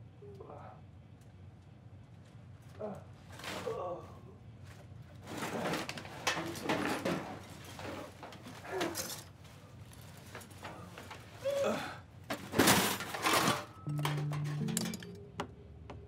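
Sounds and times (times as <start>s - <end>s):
rustling through paper and cardboard: 3.1s - 3.9s, 4.6s - 11.6s, 12.2s - 13.8s
metal toolbox opening clatter: 5.2s - 9.4s, 12.3s - 15.2s.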